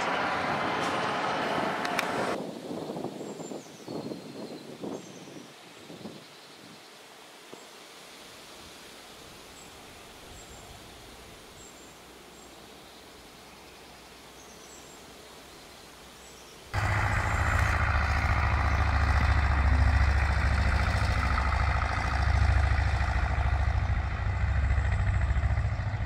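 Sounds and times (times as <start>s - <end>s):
tractor diesel engine rumbling: 0.0s - 2.4s, 16.8s - 26.0s
faint outdoor background noise: 0.0s - 26.0s.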